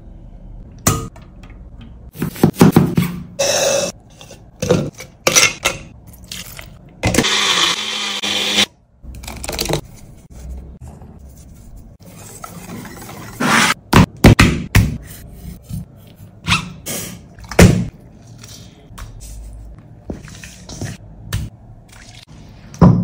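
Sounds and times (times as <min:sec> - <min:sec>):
electric mixer grinder running: 0:07.2 - 0:08.7.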